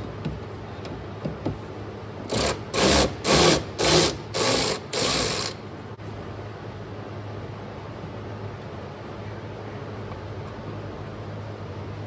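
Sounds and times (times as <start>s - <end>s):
electric ratchet whirring: 2.3s - 5.6s.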